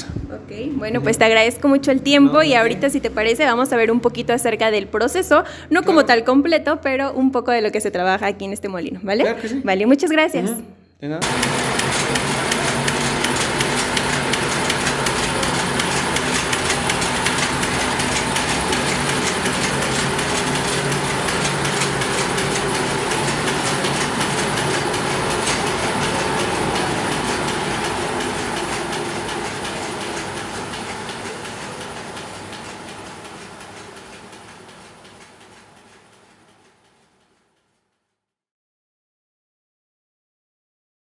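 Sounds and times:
corn mill grinding: 11.2s - 35.8s.

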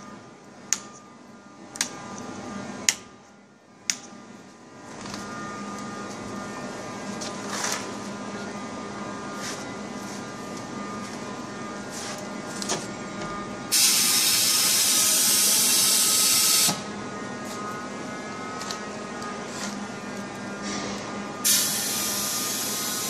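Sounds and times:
vacuum machine humming: 5.2s - 23.0s.

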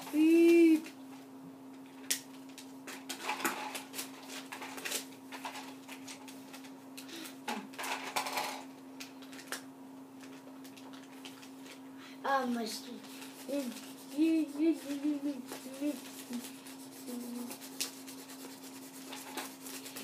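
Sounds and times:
steady low hum: 0.0s - 20.0s
paper and cardboard rustling: 12.5s - 20.0s.

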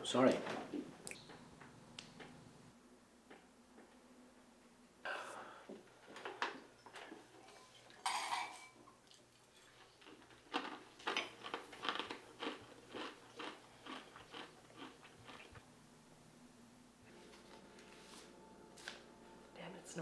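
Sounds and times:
person chewing crunchy food: 9.0s - 15.6s.

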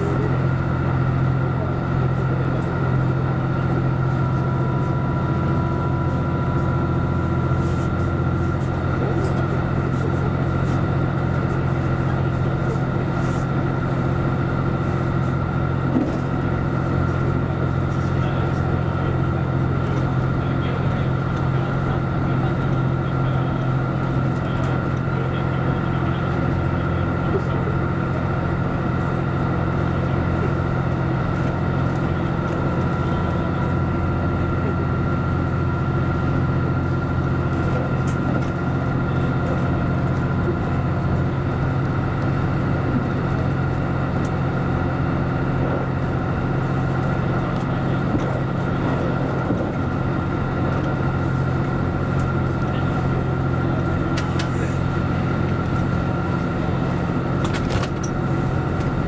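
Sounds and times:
diesel engine drone: 0.0s - 59.0s
thin steady whine: 0.0s - 59.0s.

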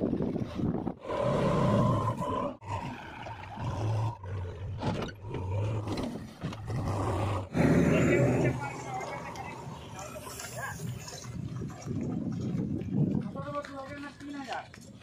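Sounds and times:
diesel engines revving: 3.5s - 11.0s.

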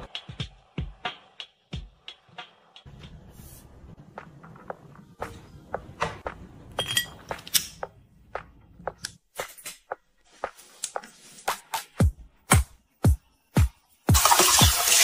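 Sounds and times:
household items tapping and clinking: 6.7s - 7.8s
glass bottles on plastic tray: 6.8s - 7.3s.

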